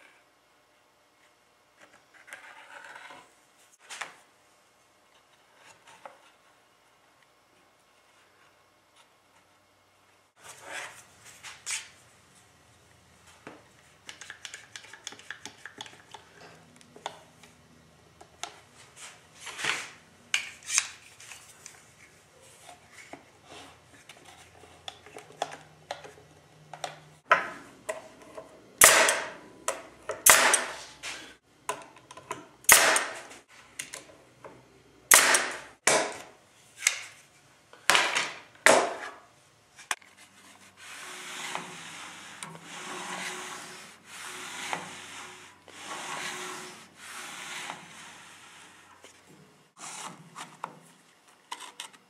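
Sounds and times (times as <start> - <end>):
sharp scraping strokes on wood: 39.8 - 50.2
sanding rubbing: 40.7 - 48.9.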